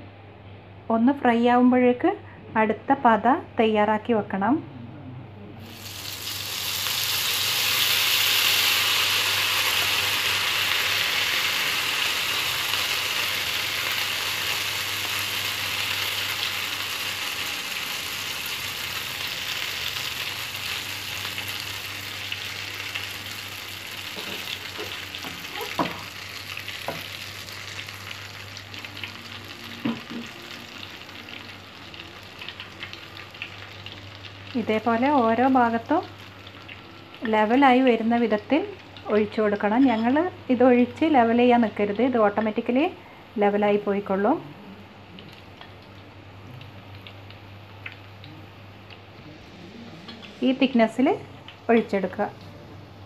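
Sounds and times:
batter sizzling in hot oil: 0:05.6 - 0:40.8.

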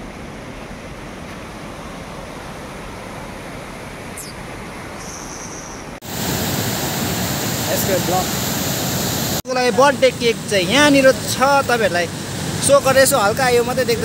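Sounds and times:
river whitewater rushing: 0:06.0 - 0:14.0.

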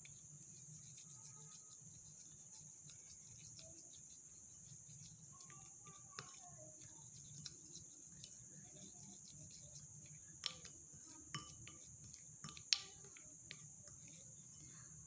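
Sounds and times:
spoon scraping paste in bowl: 0:00.0 - 0:15.0
spoon clinking against glass: 0:11.3 - 0:12.9.

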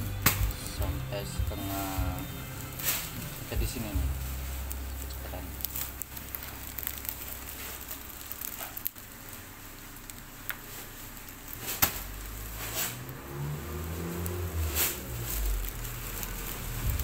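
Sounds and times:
band sealer humming: 0:00.0 - 0:08.4
plastic bag crackling: 0:00.0 - 0:17.0.

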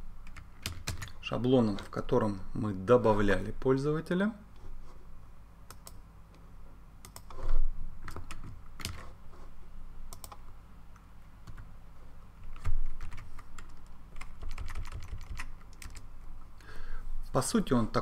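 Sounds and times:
keyboard typing: 0:00.2 - 0:01.2, 0:07.0 - 0:09.2, 0:10.1 - 0:10.4, 0:12.4 - 0:16.1.

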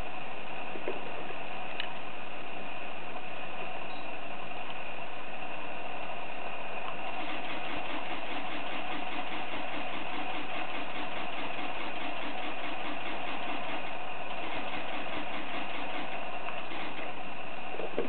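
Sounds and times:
camera shutter burst clicks: 0:07.2 - 0:17.2.

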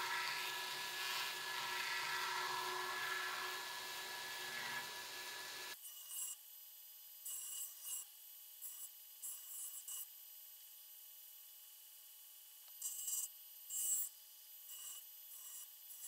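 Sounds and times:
hissy scrapes of steel on belt: 0:00.0 - 0:05.0
belt grinder grinding steel: 0:00.0 - 0:05.8.

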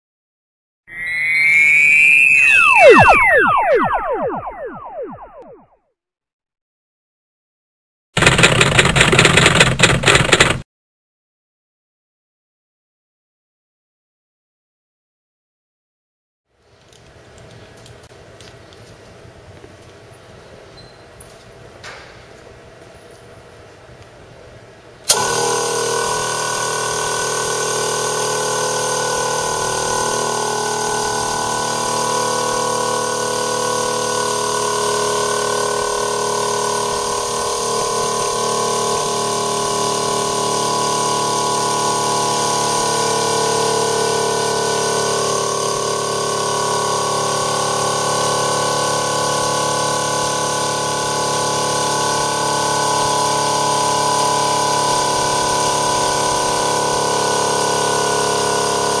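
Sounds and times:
air compressor running: 0:08.2 - 0:10.6, 0:25.1 - 0:59.0.

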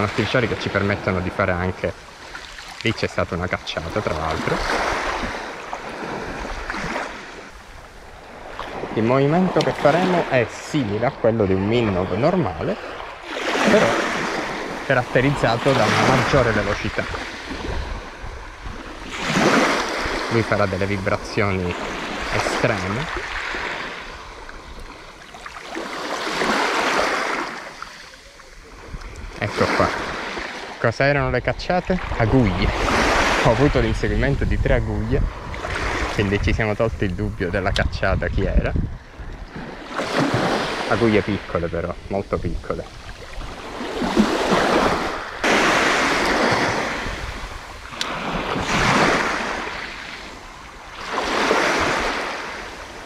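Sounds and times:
small waves washing on beach: 0:00.0 - 0:53.0.

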